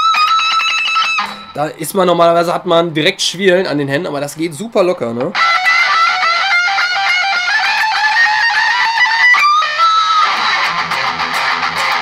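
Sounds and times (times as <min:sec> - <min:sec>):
electric guitar chord ringing: 0:00.0 - 0:01.7, 0:05.4 - 0:12.0
electric guitar lead line: 0:00.0 - 0:01.7, 0:05.3 - 0:12.0.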